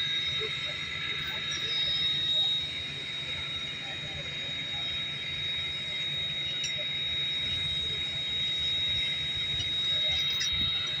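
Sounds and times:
steam locomotive high-pitched whine: 0:00.0 - 0:11.0.

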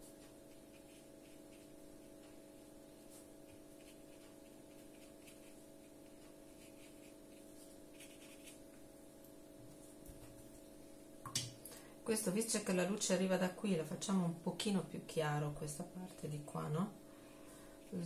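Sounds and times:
brush scratching on paper: 0:00.0 - 0:08.7
faint hum: 0:00.0 - 0:18.0.

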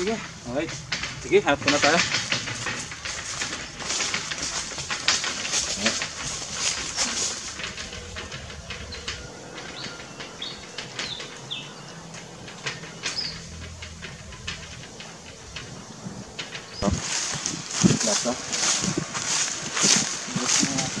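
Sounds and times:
footsteps on dry leaves: 0:00.0 - 0:12.1, 0:15.8 - 0:21.0
bird chirps: 0:08.8 - 0:13.7.

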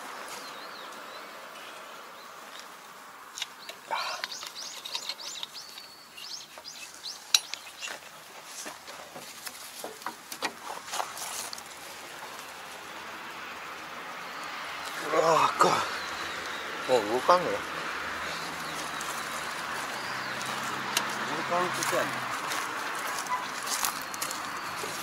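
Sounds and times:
birds chirping: 0:00.0 - 0:25.0
light metallic clinks and knocks: 0:06.6 - 0:08.1.

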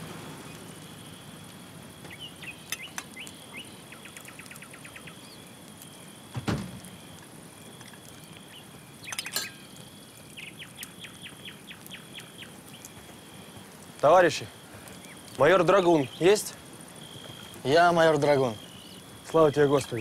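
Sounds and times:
insect trill: 0:00.0 - 0:20.0
bird chirps: 0:02.0 - 0:06.1, 0:08.2 - 0:13.5, 0:14.9 - 0:20.0
loud thud: 0:06.3 - 0:06.9.

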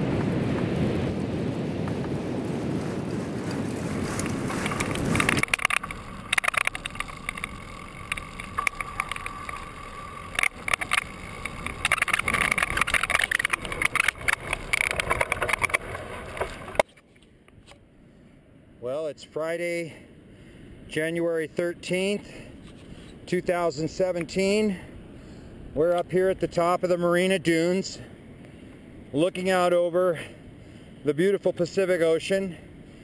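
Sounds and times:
wind rushing over microphone: 0:00.0 - 0:16.8
bike tires crackling over sand: 0:00.0 - 0:16.9
faint steady whine: 0:04.1 - 0:33.0.

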